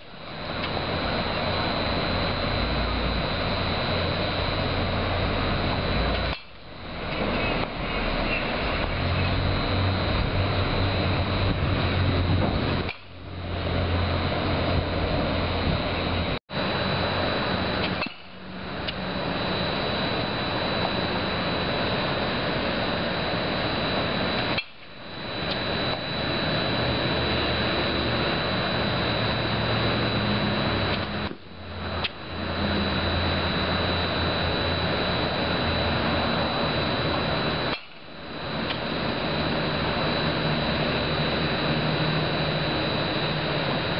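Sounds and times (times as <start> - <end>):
steady noisy roar: 0.0 - 43.9
thin high whine: 0.0 - 43.9
bat hitting balls: 17.8 - 18.4.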